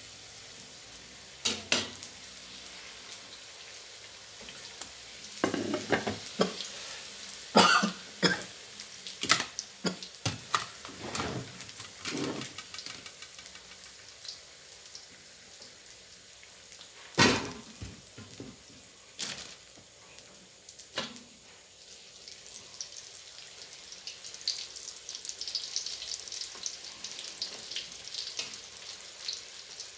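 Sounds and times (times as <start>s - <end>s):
food deep-frying in oil: 0.0s - 29.9s.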